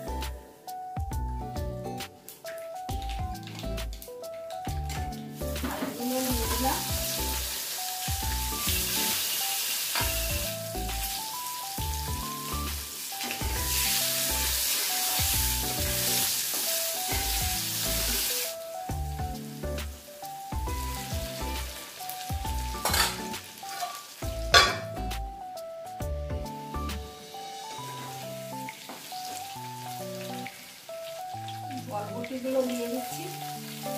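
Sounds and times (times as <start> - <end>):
background music with steady beat: 0.0 - 33.9
potatoes sizzling in oil: 4.7 - 25.2, 26.5 - 33.9
metal spatula stirring: 22.8 - 24.8.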